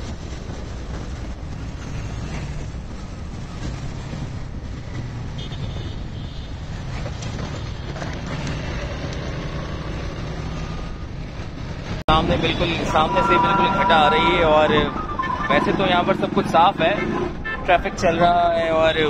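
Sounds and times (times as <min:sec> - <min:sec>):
tyre and wind noise: 0:00.0 - 0:13.5
vehicle engine hum: 0:00.0 - 0:17.6
brief high-pitched tone: 0:13.0 - 0:15.7.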